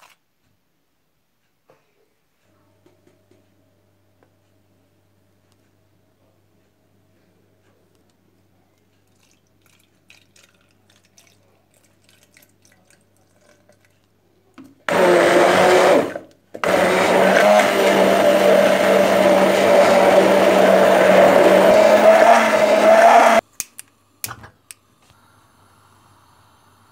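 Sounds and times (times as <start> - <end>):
stick blender motor hum: 14.9 - 23.4.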